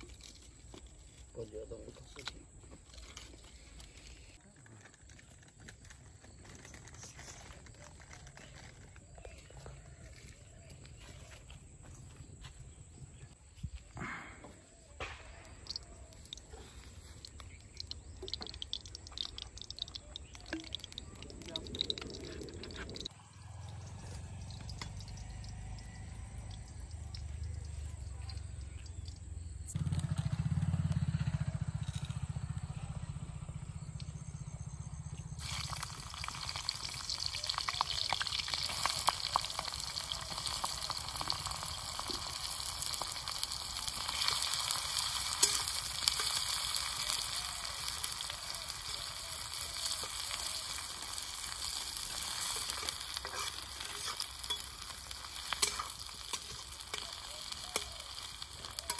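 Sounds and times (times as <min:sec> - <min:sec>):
food sizzling in hot oil: 0:15.6 - 0:29.2, 0:35.4 - 0:58.9
spatula stirring in wok: 0:48.8 - 0:58.9.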